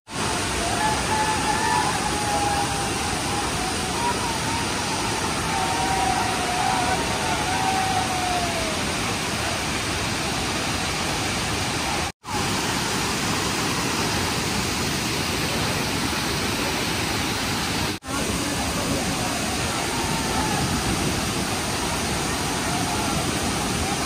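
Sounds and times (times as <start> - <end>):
faint voices: 0.1 - 10.7, 18.0 - 24.0
waterfall rushing over rocks: 0.1 - 24.0.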